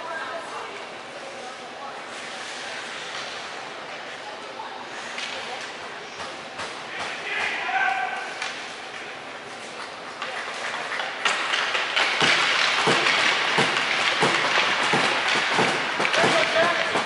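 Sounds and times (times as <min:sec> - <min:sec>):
scattered knocks: 0:12.0 - 0:17.0.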